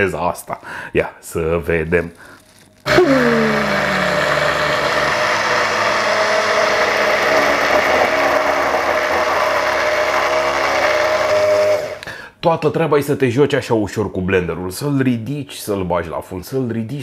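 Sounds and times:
immersion blender running: 2.9 - 12.0.

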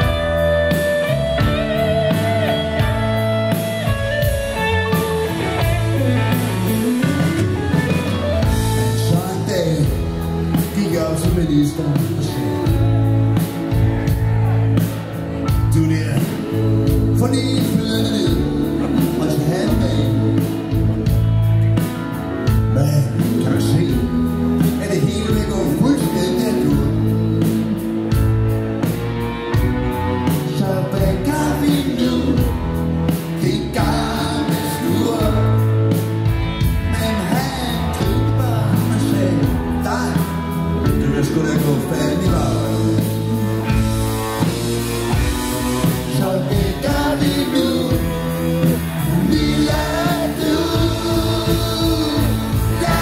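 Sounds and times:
bass guitar: 0.0 - 53.0
drums: 0.0 - 53.0
electric guitars: 0.0 - 53.0
keyboard: 0.0 - 53.0
person singing lead vocal: 4.3 - 28.6, 29.6 - 53.0.

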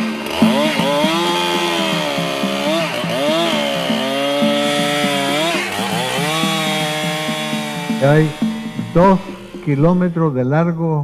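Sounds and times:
chainsaw cutting into tree trunk: 0.0 - 10.4.

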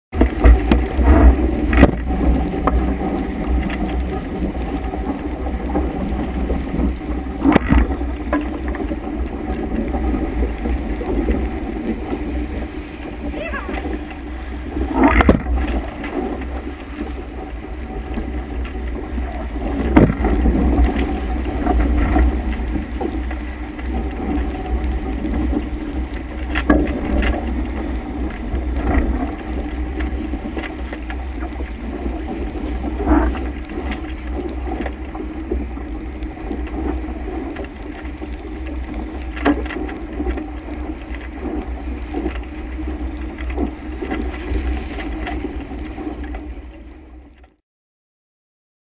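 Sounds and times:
wind buffeting microphone: 0.1 - 47.3
water rushing along hull: 0.2 - 47.6
waves slapping bow: 0.2 - 47.6.

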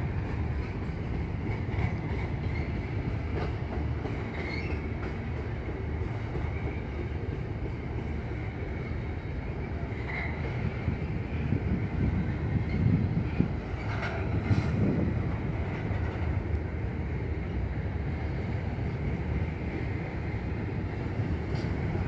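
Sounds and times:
freight train rumbling past: 0.0 - 22.0
train wheel clicks: 0.1 - 6.7, 13.7 - 14.8.

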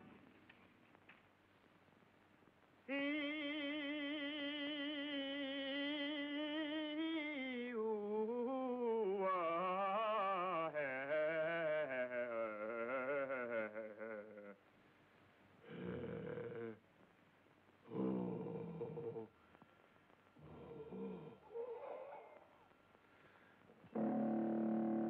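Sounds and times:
man singing operatically: 2.9 - 14.6.

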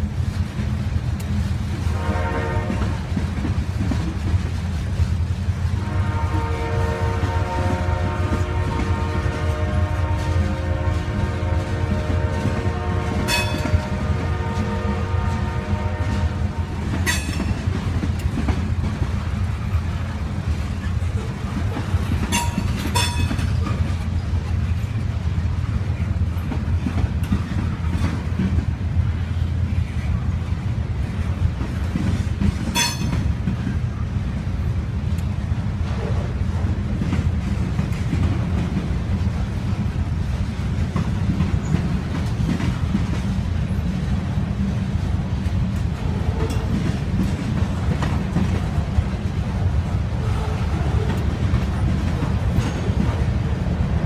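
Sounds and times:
train wheels rumbling on rail: 0.0 - 54.0
sharp metal clank: 32.8 - 33.2.

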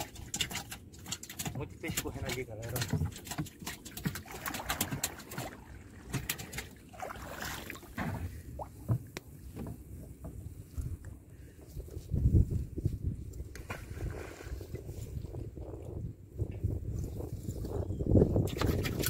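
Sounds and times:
knocks and clicks on canoe: 0.0 - 6.8, 7.9 - 10.5, 18.4 - 19.0
paddle strokes in water: 0.0 - 12.1, 13.5 - 15.2
water splash: 2.8 - 8.9.

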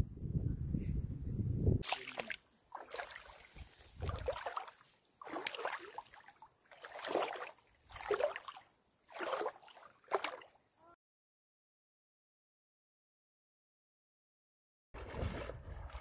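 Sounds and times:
water sloshing and splashing: 1.8 - 10.6, 15.0 - 16.0.

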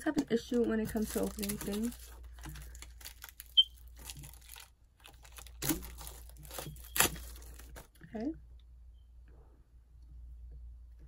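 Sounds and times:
plastic wrapping crinkling and tearing: 0.0 - 8.0.

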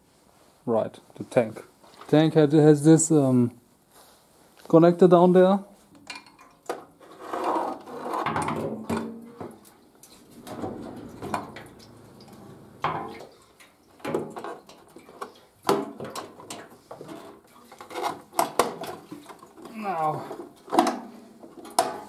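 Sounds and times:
soft rubbing and rustling: 0.0 - 2.3, 3.6 - 4.9.

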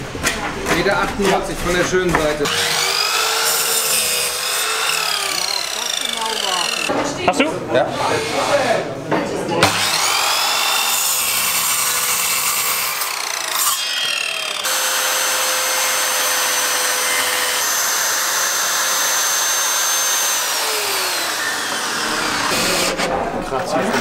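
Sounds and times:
electric saw cutting wood: 2.4 - 6.9, 9.6 - 23.0.

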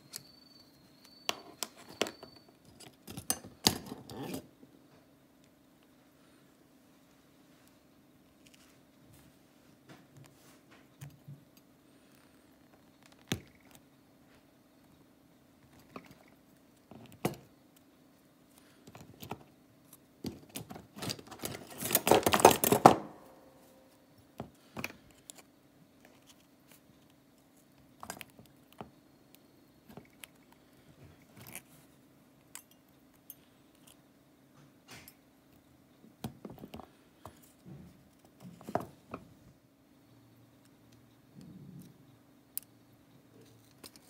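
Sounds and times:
faint low hum: 0.0 - 44.0
pliers and wire clicking: 32.4 - 34.0.

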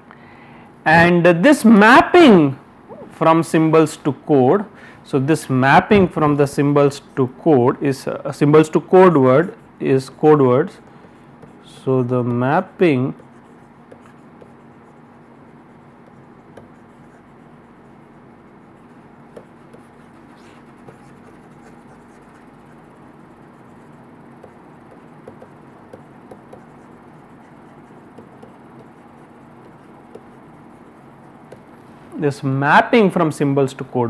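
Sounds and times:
low hum and hiss: 0.0 - 34.0
stylus tapping on tablet screen: 16.5 - 16.8, 19.3 - 20.0, 24.4 - 26.9, 28.1 - 30.4, 31.5 - 31.8.

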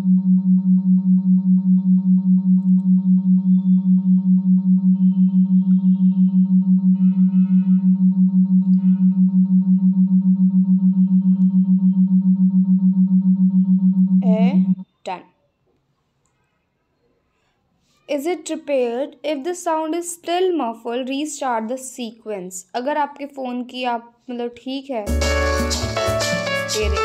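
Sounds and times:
low pulsing tone from phone speaker: 0.0 - 14.9.

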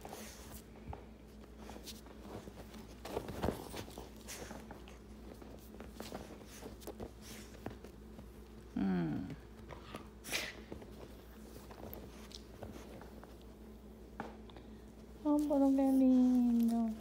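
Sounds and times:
dog rustling on cushion: 0.0 - 8.6, 10.2 - 14.1.

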